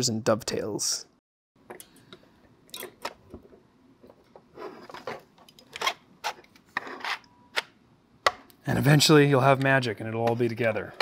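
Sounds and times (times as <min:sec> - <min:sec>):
plastic parts scraping: 0:04.1 - 0:07.3.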